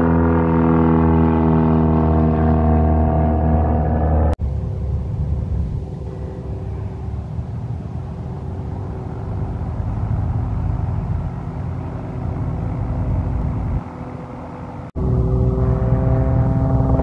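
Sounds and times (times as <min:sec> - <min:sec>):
turboprop engine running: 0:00.0 - 0:17.0.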